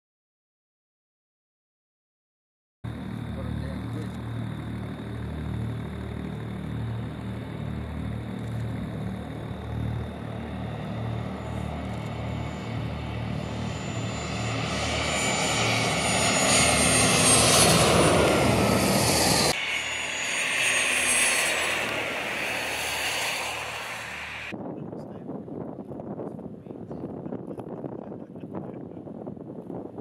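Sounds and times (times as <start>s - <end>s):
jet engine whining: 2.9s - 24.5s.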